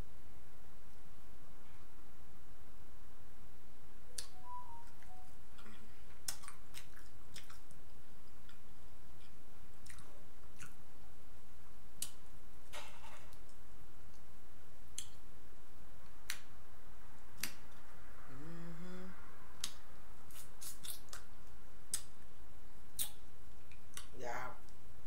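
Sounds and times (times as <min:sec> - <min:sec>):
wet eating clicks and smacks: 0:05.6 - 0:10.8, 0:15.0 - 0:15.2, 0:19.6 - 0:22.2, 0:23.0 - 0:24.8
person humming: 0:18.3 - 0:19.3.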